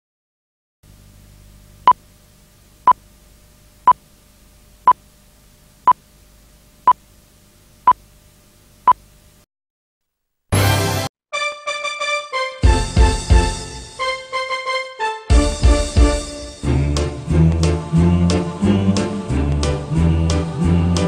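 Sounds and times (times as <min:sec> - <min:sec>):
faint low hum: 0:00.9 - 0:09.4.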